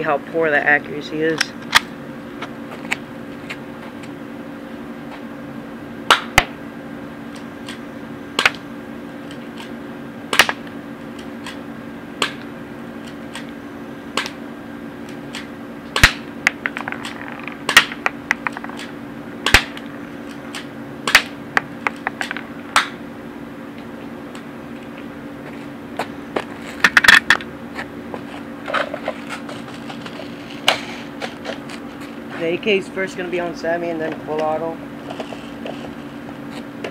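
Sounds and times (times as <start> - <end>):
airsoft pistol shots: 6.1 - 6.6, 10.3 - 10.6, 15.3 - 16.3, 17.7 - 18.0, 18.8 - 19.8, 20.5 - 21.4.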